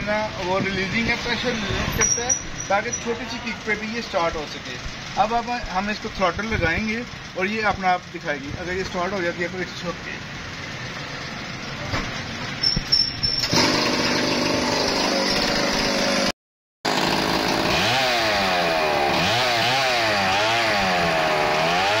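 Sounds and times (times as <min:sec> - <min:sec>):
chainsaw engine revving: 0:13.4 - 0:16.3, 0:16.9 - 0:22.0.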